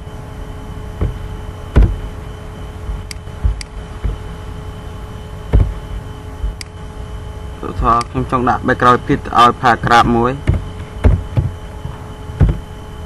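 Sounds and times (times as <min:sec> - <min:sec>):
steady low hum: 0:00.0 - 0:13.0
dull thumps: 0:01.0 - 0:04.6, 0:05.4 - 0:06.7, 0:10.4 - 0:12.9.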